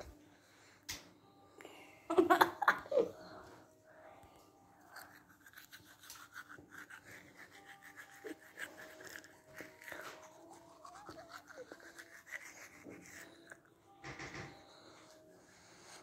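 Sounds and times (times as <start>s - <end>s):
toothbrush scrubbing teeth: 4.8s - 13.7s.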